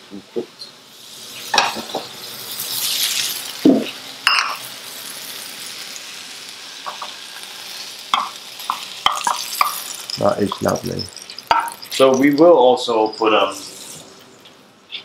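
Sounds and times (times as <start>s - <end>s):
light sizzle: 0.0s - 15.0s.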